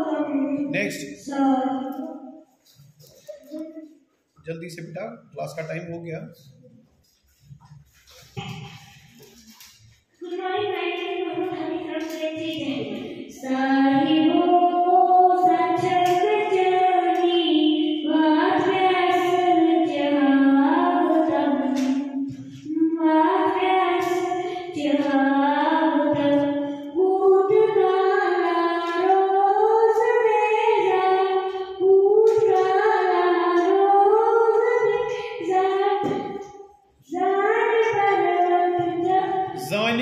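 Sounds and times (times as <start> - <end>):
boy singing into a microphone: 10.2 - 40.0.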